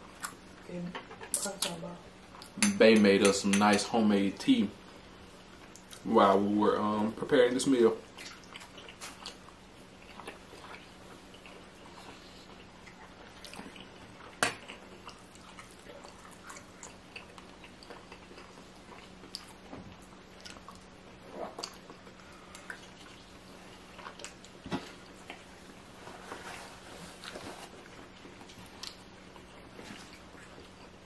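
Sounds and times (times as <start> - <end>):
faint steady hum: 0.0 - 31.0
person chewing: 8.1 - 26.0, 27.1 - 31.0.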